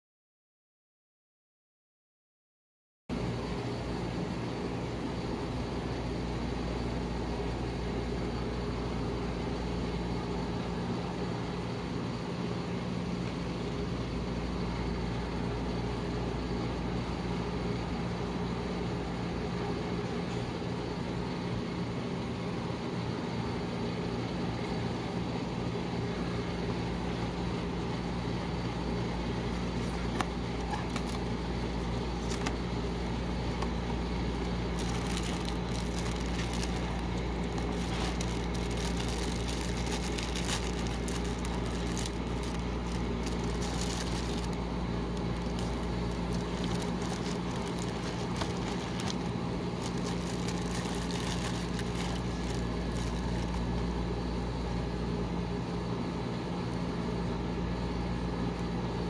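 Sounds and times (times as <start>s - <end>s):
cold plate machine humming: 3.1s - 59.0s
plastic bag crinkling: 29.4s - 54.0s.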